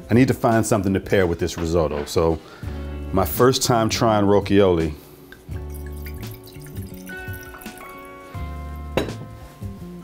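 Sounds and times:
background music: 0:00.0 - 0:10.0
glass bottle knocking on wood: 0:08.9 - 0:09.4.

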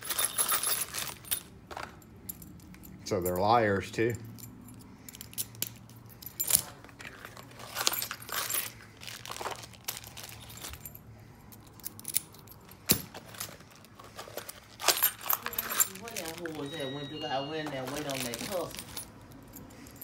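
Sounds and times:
keys and lock cylinders jangling: 0:00.0 - 0:08.9, 0:09.5 - 0:20.0.

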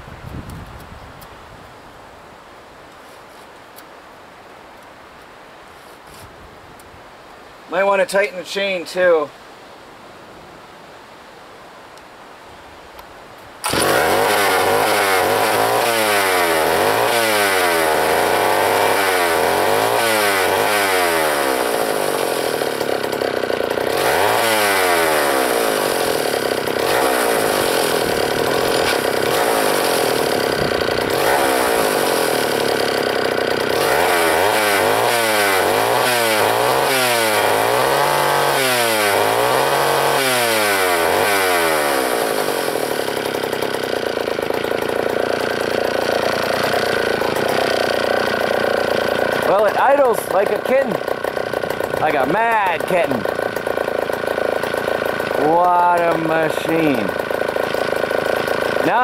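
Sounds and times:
chainsaw revving: 0:13.6 - 0:59.0.

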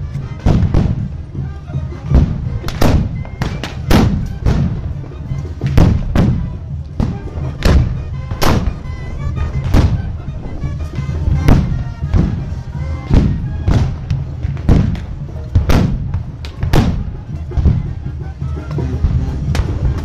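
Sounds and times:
band music: 0:00.0 - 0:20.0
musket shots with echo: 0:02.2 - 0:05.0, 0:05.7 - 0:08.9, 0:13.1 - 0:17.2.

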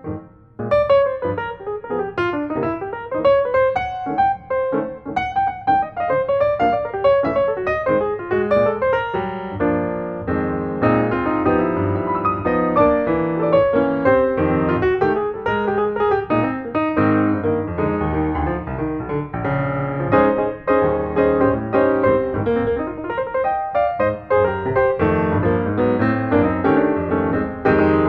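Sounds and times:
piano music: 0:00.0 - 0:28.0.

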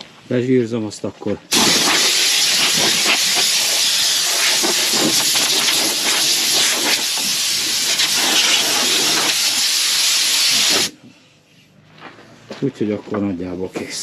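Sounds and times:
compressed air hissing: 0:01.5 - 0:11.1.

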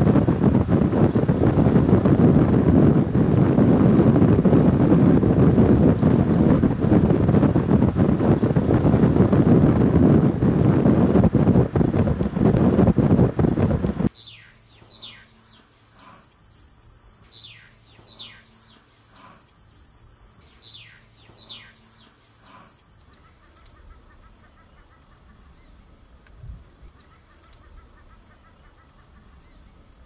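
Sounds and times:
faint rapid chirping: 0:14.1 - 0:30.0
high insect drone: 0:14.1 - 0:30.0
bird descending whistles: 0:14.2 - 0:15.6, 0:17.3 - 0:18.8, 0:20.5 - 0:22.1.

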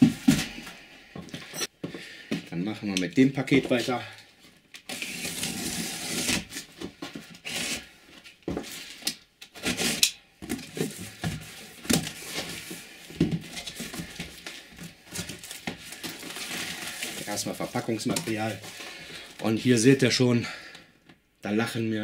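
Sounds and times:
box cutter slitting tape: 0:04.8 - 0:06.7, 0:07.4 - 0:07.9, 0:09.4 - 0:10.6
tape and cardboard tearing: 0:04.8 - 0:06.8, 0:07.4 - 0:07.9, 0:09.0 - 0:11.0
paper packing filler rustling: 0:04.9 - 0:07.9, 0:09.6 - 0:19.8.

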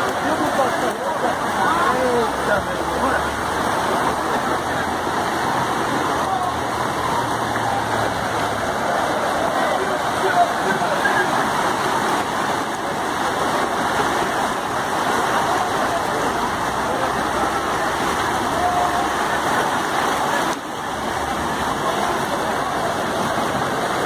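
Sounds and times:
floodwater rushing along street: 0:00.0 - 0:24.0.

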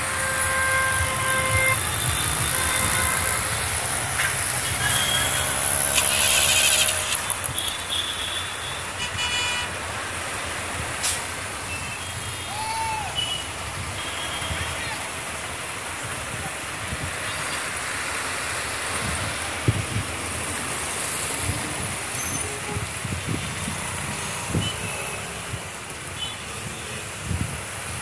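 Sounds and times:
diesel machinery rumbling: 0:00.0 - 0:07.6.

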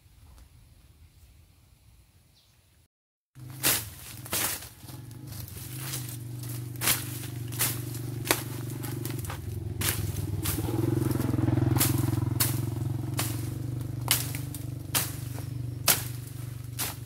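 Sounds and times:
low engine hum: 0:03.4 - 0:17.0
machete slashing through brush: 0:03.4 - 0:17.0.

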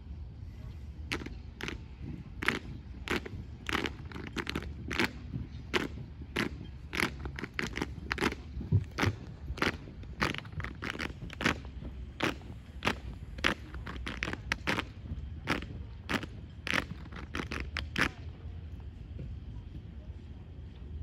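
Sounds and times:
foot stomps: 0:05.7 - 0:14.9.

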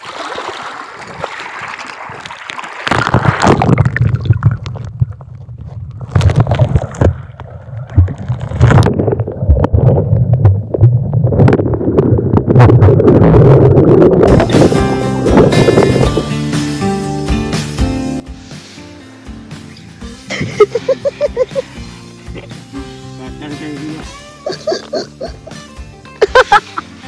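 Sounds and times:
muffled underwater gurgling: 0:03.4 - 0:16.2
low rumble: 0:03.8 - 0:16.4.

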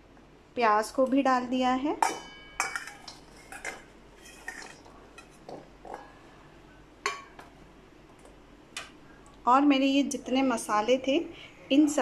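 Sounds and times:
onion pieces clinking in steel bowl: 0:02.0 - 0:05.4.

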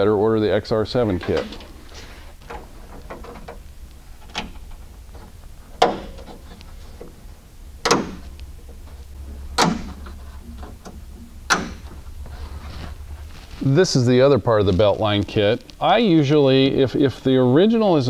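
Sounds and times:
weatherstrip snapping onto clips: 0:02.4 - 0:07.2, 0:07.8 - 0:08.9, 0:09.5 - 0:12.1.

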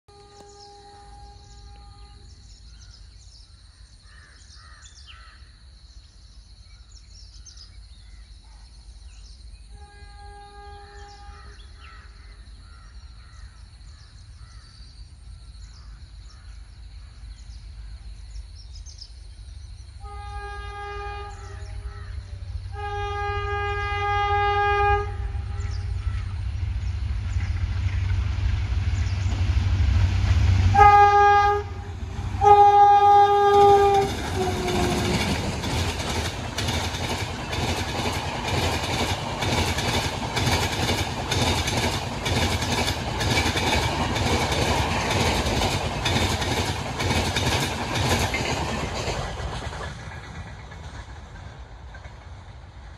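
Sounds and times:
locomotive horn: 0:00.1 - 0:02.5, 0:09.7 - 0:11.8, 0:20.0 - 0:26.2, 0:30.6 - 0:35.6
diesel locomotive rumble: 0:07.0 - 0:52.9.

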